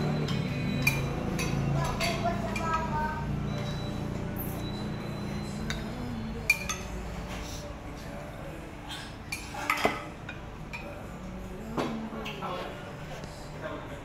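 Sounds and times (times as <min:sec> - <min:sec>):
ceramic dishes and cutlery clinking: 0:00.0 - 0:03.9, 0:05.4 - 0:07.5, 0:08.9 - 0:12.8.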